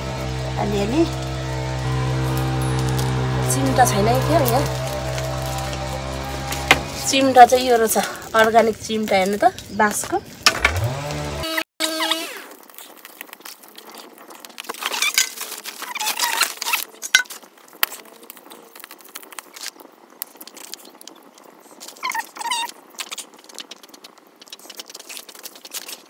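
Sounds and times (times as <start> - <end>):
chicken crackling over wood fire: 0.0 - 11.2, 12.4 - 26.0
rustling of handling: 12.5 - 26.0.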